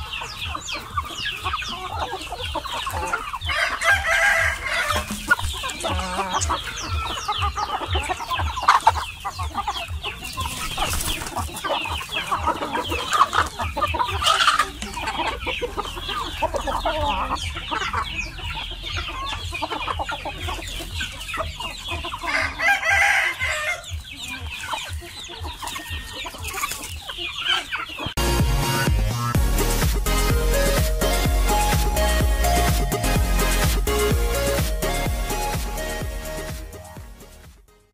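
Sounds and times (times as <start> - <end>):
background music: 0.0 - 37.9
chickens clucking: 0.0 - 37.9
rooster crowing: 3.4 - 5.2, 22.2 - 23.9.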